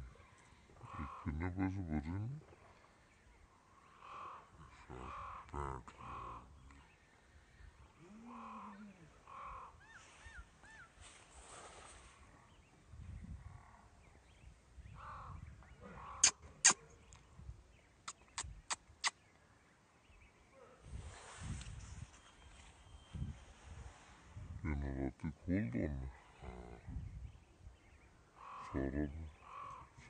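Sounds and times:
crows cawing: 0:03.8 - 0:06.5, 0:08.3 - 0:09.8, 0:15.0 - 0:16.3, 0:28.4 - 0:28.8, 0:29.4 - 0:29.9.

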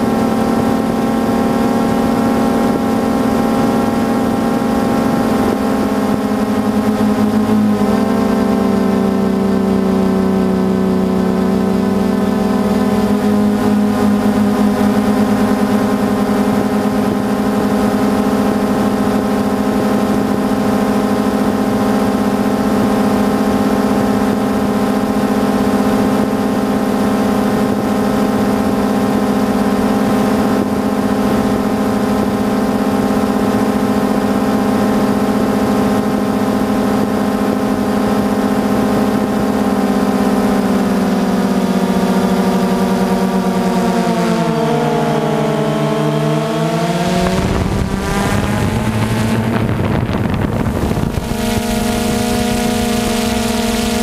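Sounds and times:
drone motors humming: 0:00.0 - 0:54.0.

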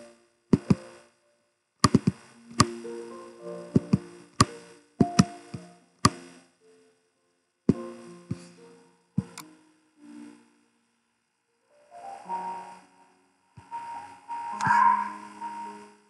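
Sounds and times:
sparse struck notes music: 0:12.2 - 0:16.0.

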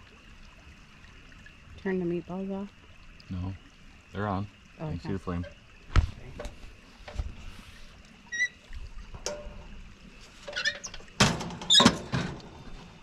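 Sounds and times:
short squeak: 0:08.3 - 0:08.6, 0:10.5 - 0:11.0
metal clanks and knocks: 0:09.2 - 0:09.7, 0:10.5 - 0:12.6.

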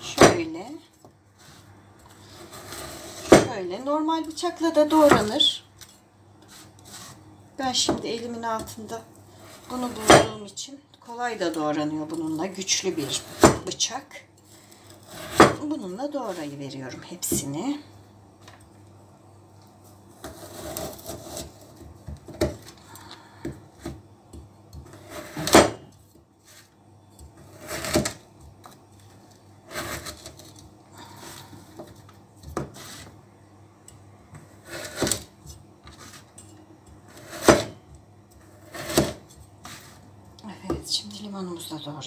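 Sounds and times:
knife cutting frozen fruit: 0:20.2 - 0:21.8, 0:27.4 - 0:28.2, 0:29.7 - 0:31.5, 0:34.4 - 0:36.3, 0:38.4 - 0:40.0.

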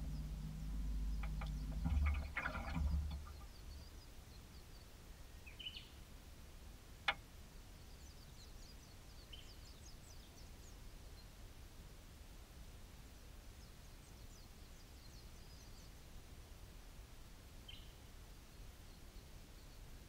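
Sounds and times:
low rumble with rattling: 0:00.0 - 0:04.1
small birds chirping: 0:00.0 - 0:06.0.

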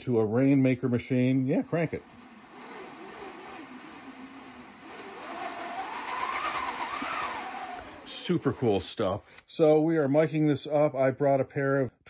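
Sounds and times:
rainmaker machine hiss: 0:01.4 - 0:09.5.

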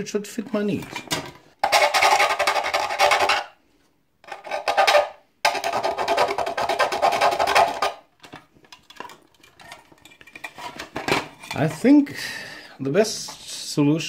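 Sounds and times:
rasping scrape on plexiglass: 0:05.8 - 0:08.0.

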